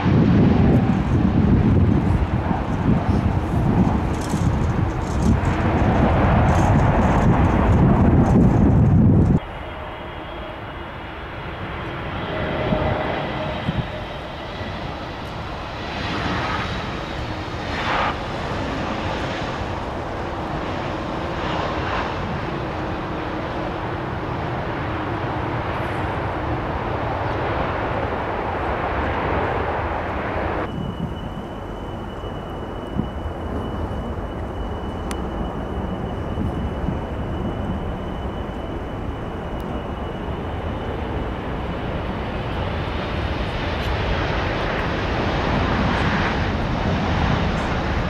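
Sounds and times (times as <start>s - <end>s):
airliner engines running: 0.0s - 48.0s.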